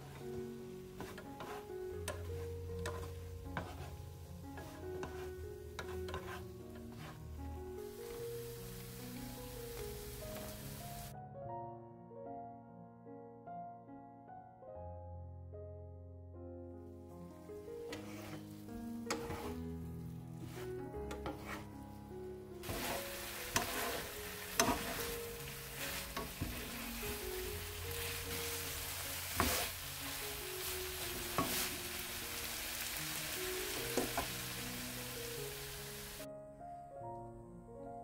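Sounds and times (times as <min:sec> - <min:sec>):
spatula knocking and scraping pan: 0:00.0 - 0:07.4, 0:17.9 - 0:19.6, 0:20.4 - 0:21.8, 0:22.6 - 0:30.0, 0:30.6 - 0:31.9, 0:33.7 - 0:34.4
food sizzling in frying pan: 0:00.0 - 0:11.1, 0:16.9 - 0:21.8, 0:22.6 - 0:36.3
soft piano music: 0:00.0 - 0:38.0.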